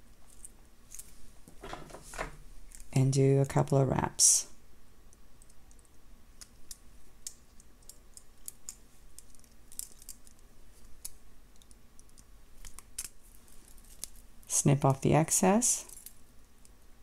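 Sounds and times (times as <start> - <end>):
pliers and wire clicking: 5.1 - 14.2.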